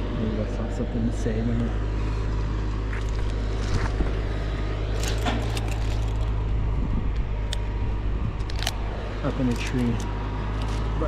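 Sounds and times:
steady low rumble: 0.0s - 11.0s
climbing hardware clicking and rattling: 4.9s - 6.4s.

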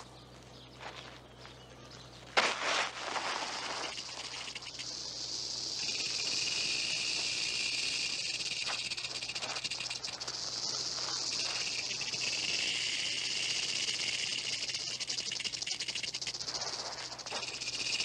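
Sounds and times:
faint footfalls on dirt: 0.0s - 3.9s
rattlesnakes rattling: 2.4s - 18.0s.

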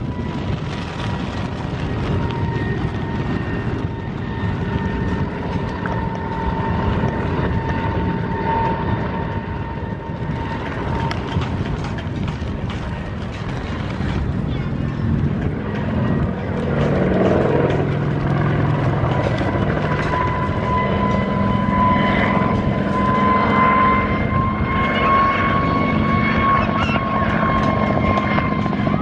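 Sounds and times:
helicopter engines and rotor chop: 0.0s - 29.0s.

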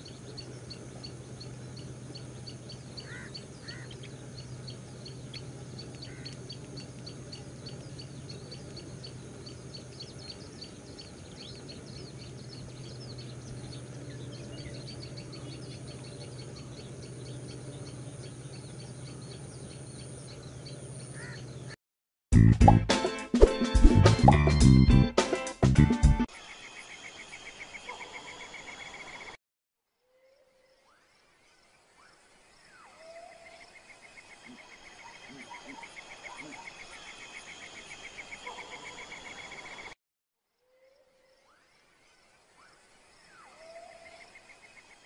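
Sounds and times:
lower bird calls: 0.0s - 21.8s
small birds chirping: 0.0s - 21.8s, 30.3s - 40.0s
steady low hum: 0.0s - 21.8s.

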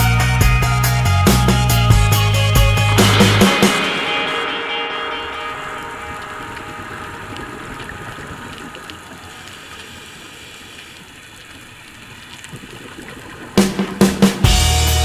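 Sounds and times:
music: 0.0s - 8.3s, 13.6s - 15.0s
rushing water-like noise: 3.0s - 14.6s
faint crackles: 5.0s - 14.1s.

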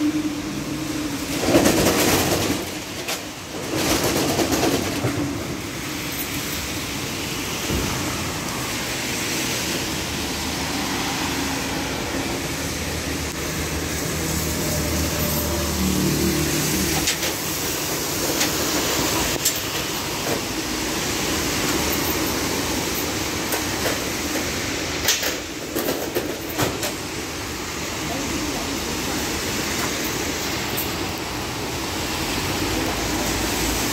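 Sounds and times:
vehicle engine and tyre noise: 0.0s - 33.9s
sharp clicks and knocks: 23.5s - 27.0s.

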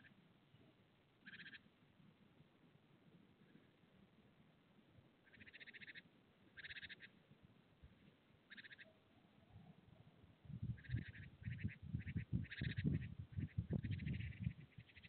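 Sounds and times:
faint rattling animal calls: 0.0s - 1.7s, 5.2s - 7.2s, 8.5s - 15.0s.

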